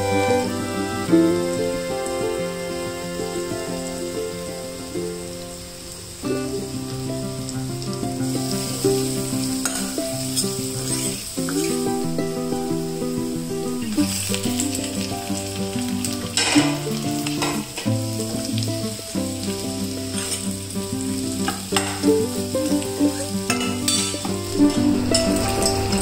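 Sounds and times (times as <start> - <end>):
potatoes sizzling in oil: 0.0 - 26.0
spoon scraping a pan: 9.6 - 11.8, 20.2 - 20.5, 23.5 - 26.0.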